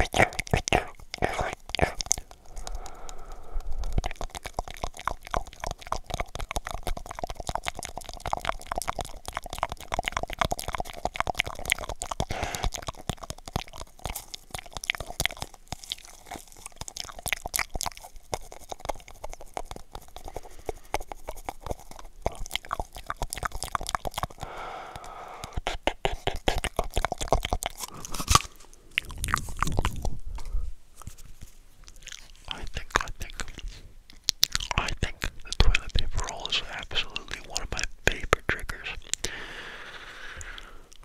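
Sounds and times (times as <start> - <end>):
wet mouth clicks and lip smacks: 0.0 - 41.0
breath hitting microphone: 2.4 - 4.1, 12.3 - 12.8, 20.2 - 21.2, 24.4 - 25.6, 27.8 - 31.2, 39.2 - 41.0.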